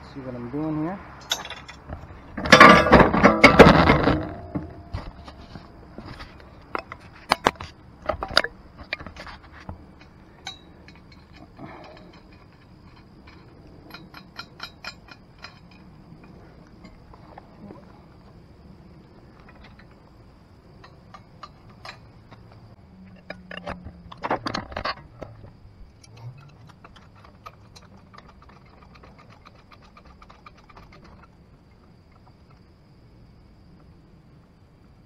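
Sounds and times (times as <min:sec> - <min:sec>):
sharp metal knocks: 0:01.2 - 0:05.4, 0:06.8 - 0:17.0.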